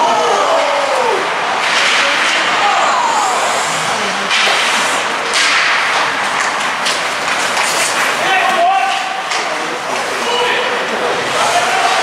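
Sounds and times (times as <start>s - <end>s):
hockey sticks and puck knocking: 1.6s - 2.7s, 4.3s - 10.8s
skate blades scraping ice: 1.6s - 12.0s.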